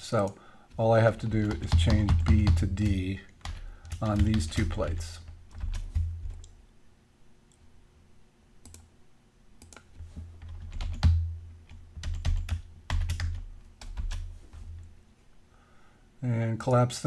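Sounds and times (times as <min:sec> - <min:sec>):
computer keyboard typing: 0:00.7 - 0:06.6, 0:08.6 - 0:08.8, 0:09.6 - 0:14.3.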